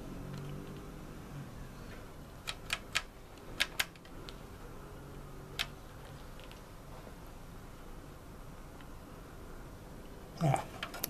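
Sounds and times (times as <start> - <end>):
rotary switch clicking: 2.4 - 4.1.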